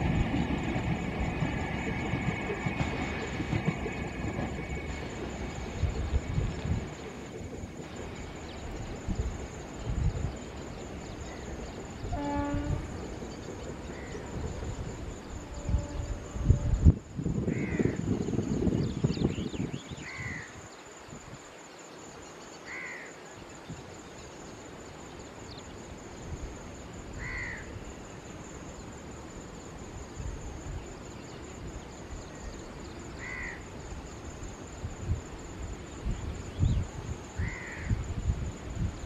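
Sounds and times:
crow cawing: 22.7 - 23.1, 27.2 - 27.6, 33.2 - 33.6, 37.4 - 37.9.

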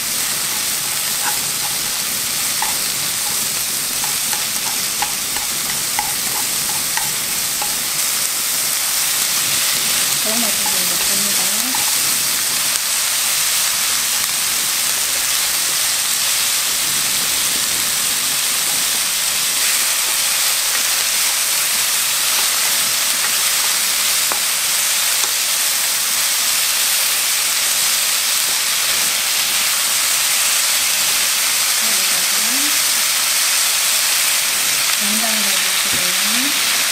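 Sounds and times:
vegetables sizzling in hot oil: 0.0 - 36.9
wooden utensil taps: 2.6 - 7.9.

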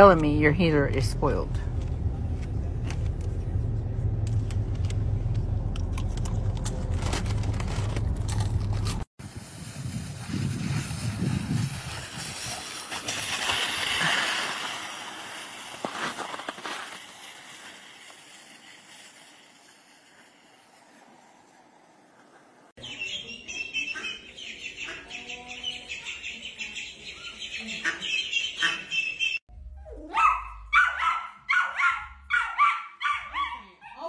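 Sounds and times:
board scraping on snow: 7.1 - 22.7
ducklings peeping: 22.8 - 29.4.

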